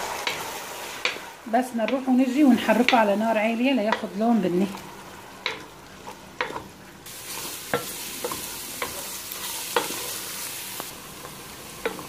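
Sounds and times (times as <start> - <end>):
onions sizzling in oil: 0.0 - 12.0
wooden spoon scraping a pan: 3.8 - 12.0.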